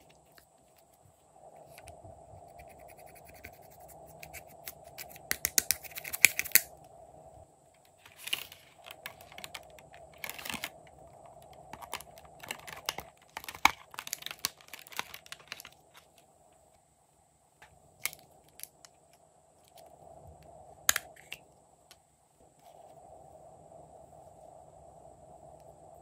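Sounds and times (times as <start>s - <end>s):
faint steady hum: 0.0s - 26.0s
plastic packaging crackling: 7.9s - 16.2s.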